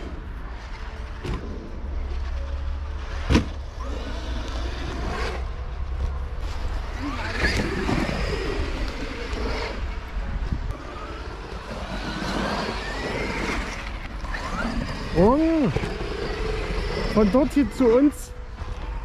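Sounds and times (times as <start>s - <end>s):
electric motor whining: 3.6s - 5.7s, 6.8s - 19.0s.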